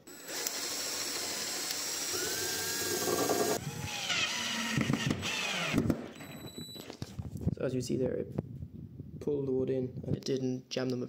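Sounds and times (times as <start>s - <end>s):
cordless drill boring into wood: 0.0s - 5.9s
drill driving screw into wood: 0.0s - 6.2s.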